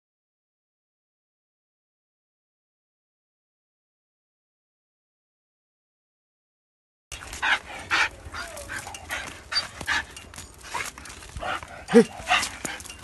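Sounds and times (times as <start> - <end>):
dog sniffing and panting: 7.2 - 13.0.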